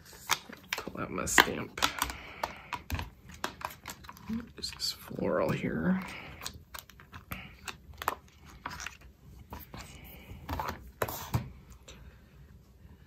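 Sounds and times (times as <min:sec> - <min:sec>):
plastic crackles and clicks: 0:00.2 - 0:04.8.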